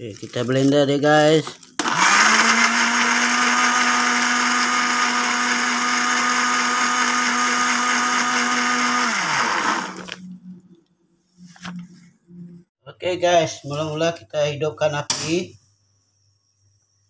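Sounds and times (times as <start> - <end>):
blender motor grinding: 1.8 - 10.2
blender motor winding down: 1.8 - 10.2.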